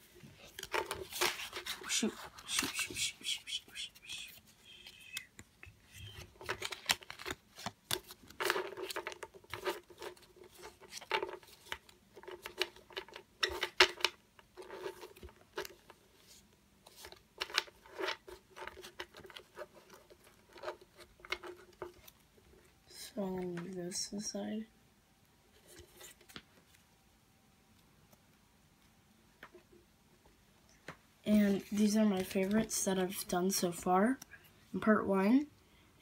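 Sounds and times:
cards slapping and riffling: 0.3s - 22.2s.

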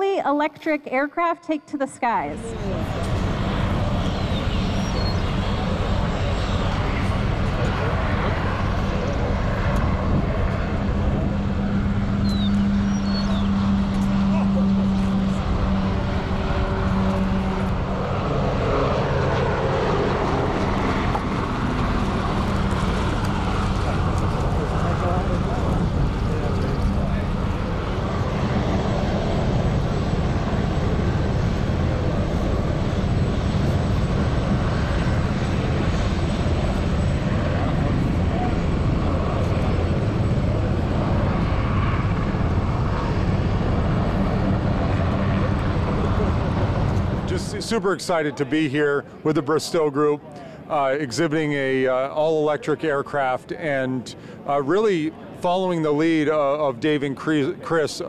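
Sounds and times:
rushing drone: 2.0s - 56.7s
electric propeller humming: 2.4s - 47.4s.

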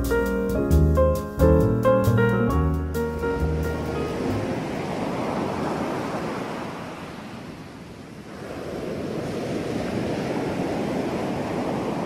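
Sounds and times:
ocean waves: 3.2s - 12.0s.

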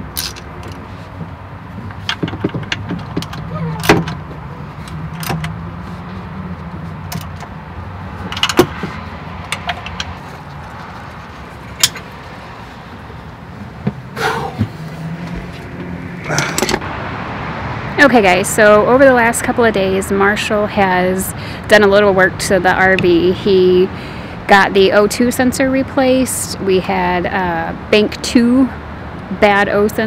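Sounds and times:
hand tools clicking and knocking: 1.8s - 5.6s, 8.2s - 12.2s, 16.3s - 16.8s.

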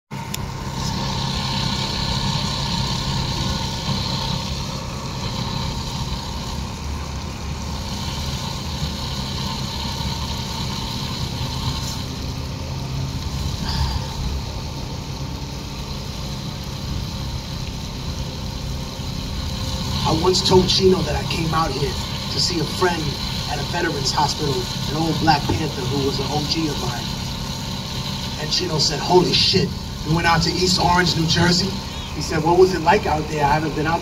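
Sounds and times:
steady low hum: 0.1s - 34.0s
faint steady tones: 0.3s - 34.0s.

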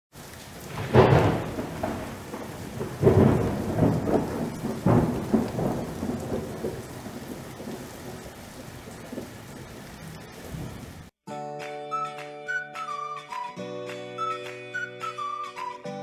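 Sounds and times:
rain hissing: 0.1s - 11.1s
thunder claps rolling: 0.5s - 11.1s.

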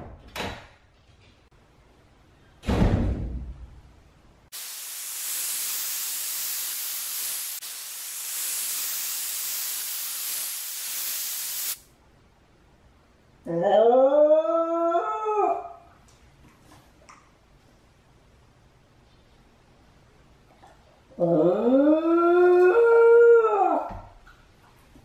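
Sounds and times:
loud thump: 2.6s - 3.6s
white noise hiss: 3.8s - 13.5s.

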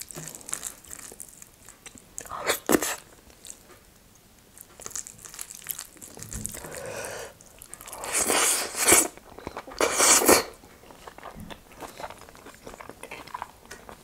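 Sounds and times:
quiet chewing: 0.0s - 14.0s
wet mouth noises: 7.8s - 13.5s.

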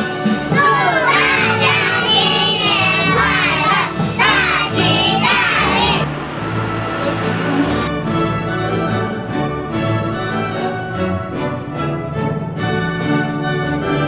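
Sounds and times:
background music: 0.0s - 14.0s
children calling out together: 0.5s - 6.1s.

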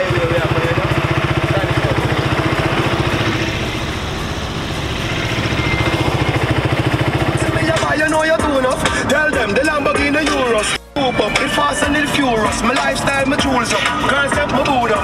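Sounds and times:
motorcycle engine idling: 0.0s - 10.6s.

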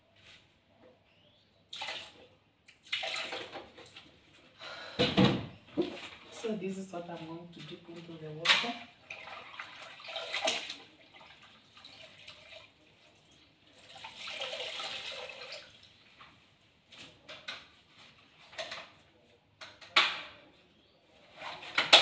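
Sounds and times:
water sloshing in plastic bucket: 1.7s - 4.2s, 5.8s - 6.5s, 7.6s - 12.7s.

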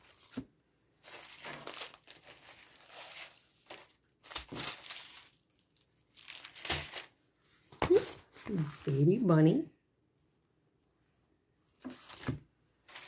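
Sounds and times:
paper and film rustling: 0.0s - 0.4s, 1.0s - 9.0s, 11.8s - 13.0s
plastic bag crinkling: 1.0s - 7.2s, 12.0s - 13.0s.

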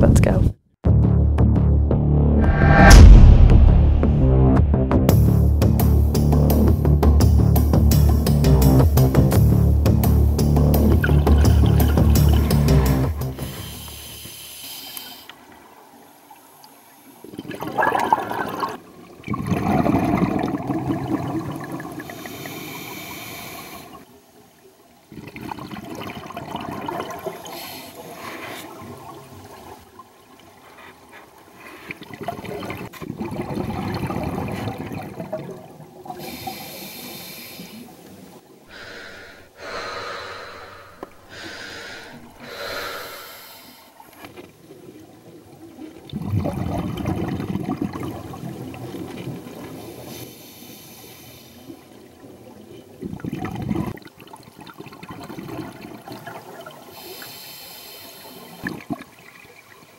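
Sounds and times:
bubbles gurgling: 10.9s - 13.0s, 17.2s - 22.5s, 25.1s - 27.6s, 32.1s - 36.4s, 44.8s - 49.8s, 52.2s - 57.0s
regulator breathing underwater: 11.7s - 15.3s, 22.0s - 24.1s, 27.3s - 28.8s, 36.1s - 38.0s, 38.7s - 44.2s, 49.7s - 51.8s, 56.9s - 58.9s.

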